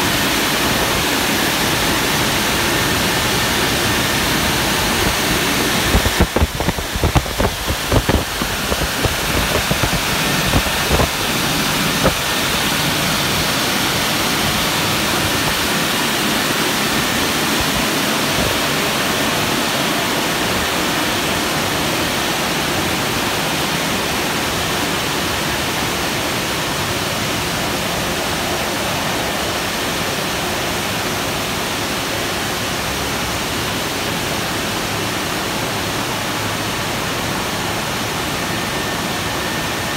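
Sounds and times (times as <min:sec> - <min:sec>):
car wash rushing noise: 0:00.0 - 0:39.9.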